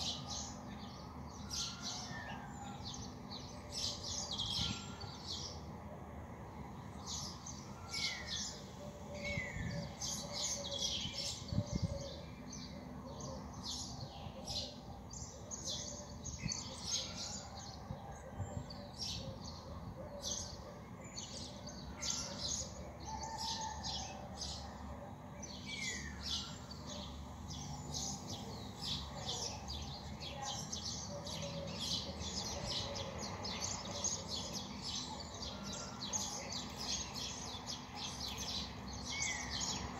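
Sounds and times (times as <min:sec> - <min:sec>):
small birds chirping: 0:24.4 - 0:39.9.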